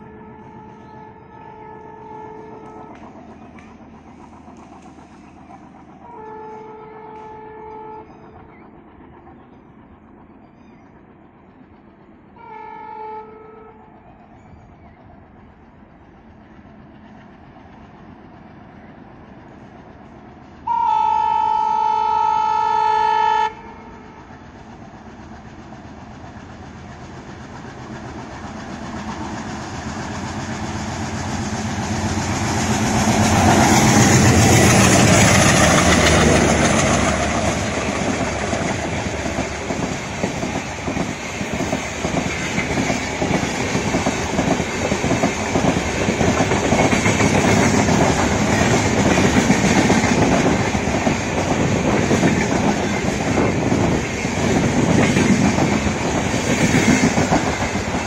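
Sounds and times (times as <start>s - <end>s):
train horn blasts: 0.0s - 3.2s, 6.0s - 8.1s, 12.4s - 13.9s, 20.6s - 24.3s
diesel locomotive engines: 0.0s - 58.0s
train wheels on rails: 0.0s - 58.0s.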